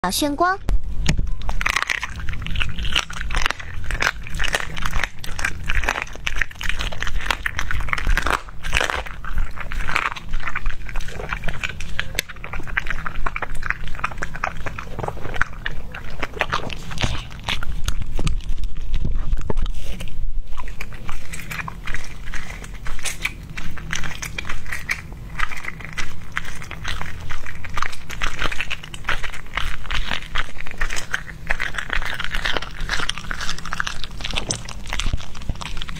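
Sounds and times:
dog crunching bones: 1.0 - 35.9.

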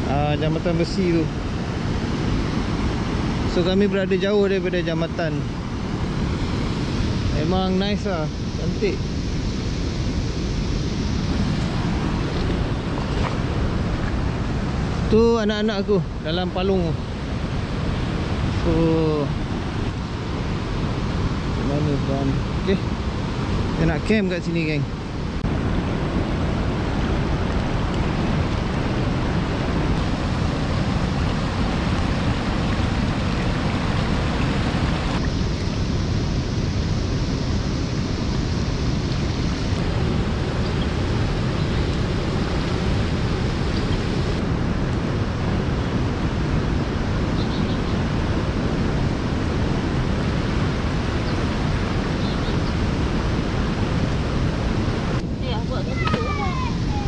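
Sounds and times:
river rushing over stones: 0.0 - 36.2, 37.9 - 47.3.

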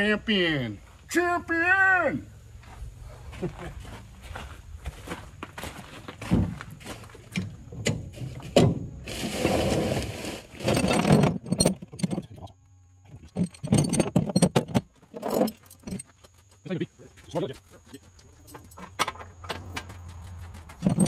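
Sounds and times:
chains scraping: 10.5 - 12.5, 13.1 - 16.1, 20.7 - 21.0
chains clanking against metal: 10.6 - 16.1, 20.7 - 21.0.

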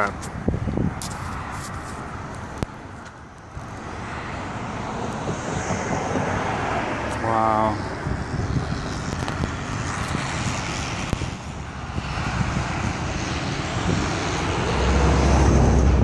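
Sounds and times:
road traffic: 0.0 - 16.0
vehicle passing by: 3.6 - 16.0.

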